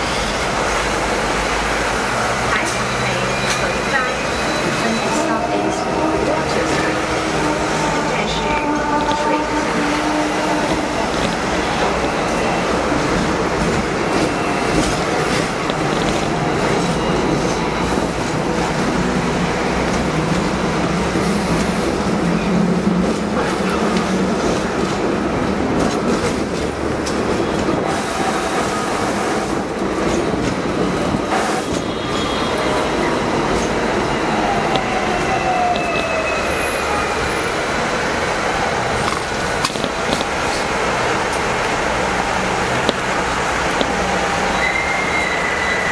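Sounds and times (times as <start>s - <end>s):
tram wheels rumbling on rails: 0.0s - 45.9s.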